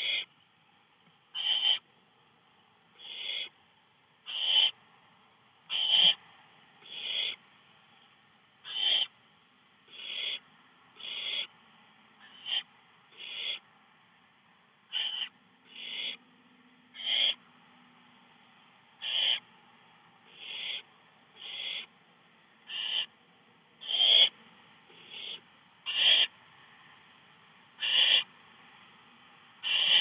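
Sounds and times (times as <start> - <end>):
owl chicks hissing: 0.0 - 0.3, 1.4 - 1.8, 3.0 - 3.5, 4.3 - 4.8, 5.7 - 6.2, 6.8 - 7.4, 8.6 - 9.1, 9.9 - 10.4, 11.0 - 11.5, 12.2 - 13.6, 14.9 - 16.2, 17.0 - 17.4, 19.0 - 19.5, 20.3 - 21.9, 22.7 - 23.1, 23.8 - 26.3, 27.8 - 28.3, 29.6 - 30.0.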